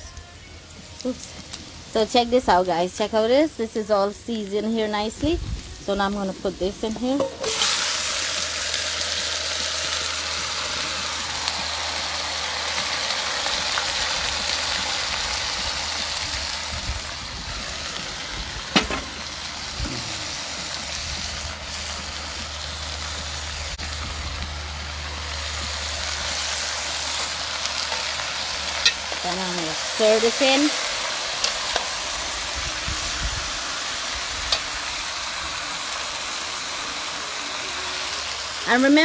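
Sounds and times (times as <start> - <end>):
meat sizzling in hot oil: 0.8 - 39.0
low steady rumble: 21.3 - 27.0.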